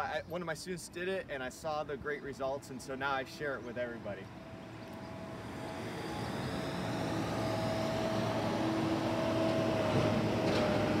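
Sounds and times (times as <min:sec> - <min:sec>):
steady whine: 0:00.0 - 0:11.0.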